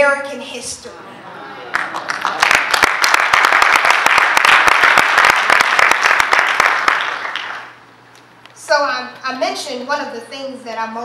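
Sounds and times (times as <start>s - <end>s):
congregation applauding: 1.7s - 7.8s.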